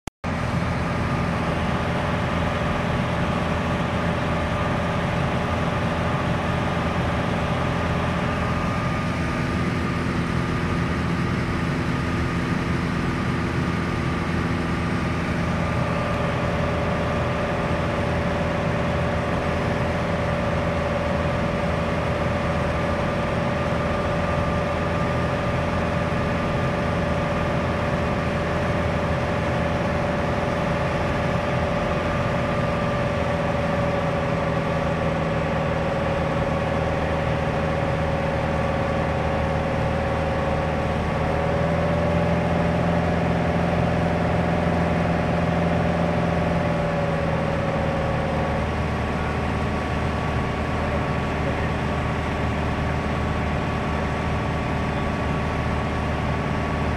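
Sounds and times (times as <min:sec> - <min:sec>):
aircraft engine and propeller drone: 0:00.2 - 0:56.9.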